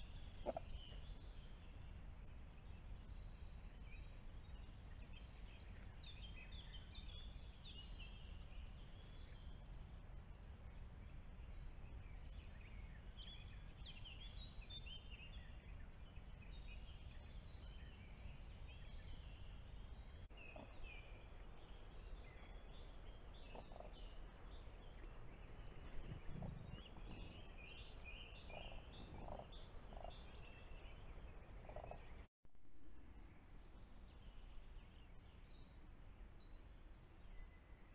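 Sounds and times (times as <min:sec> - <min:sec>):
songbirds chirping: 0:00.0 - 0:32.3, 0:33.2 - 0:37.9
faint low rumble: 0:00.0 - 0:37.9
cranes calling softly: 0:00.4 - 0:00.8.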